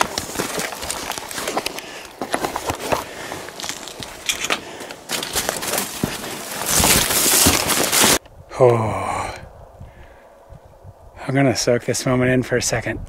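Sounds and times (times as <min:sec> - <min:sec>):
branches rustling against clothing: 0:00.0 - 0:08.2
man groaning ohh: 0:08.5 - 0:09.5.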